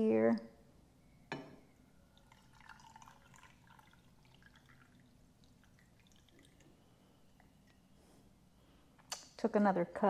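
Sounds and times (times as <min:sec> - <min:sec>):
water trickling into a glass jar: 0:01.7 - 0:07.9.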